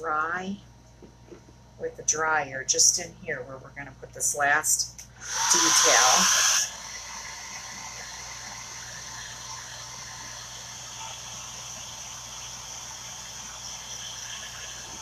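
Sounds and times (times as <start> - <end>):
high steady whine: 4.4 - 15.0
even hiss: 5.2 - 15.0.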